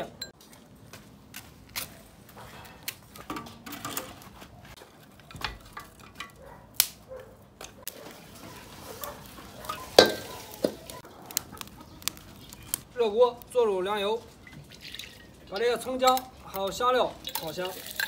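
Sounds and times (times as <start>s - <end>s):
firewood knocking on metal stove: 9.9s - 10.9s.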